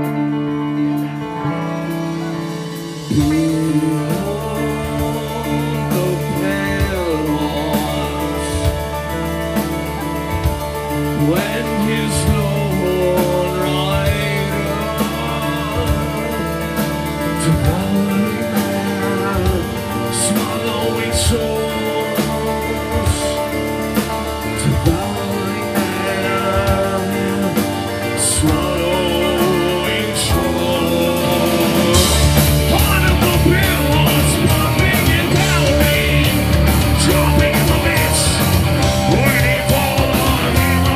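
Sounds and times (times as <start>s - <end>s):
man singing: 0.0s - 40.9s
rock band playing live: 0.0s - 40.9s.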